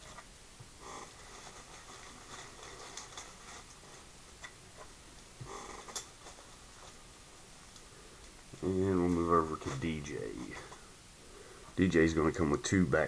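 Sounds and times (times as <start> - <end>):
soft handling rustles: 1.1 - 11.0.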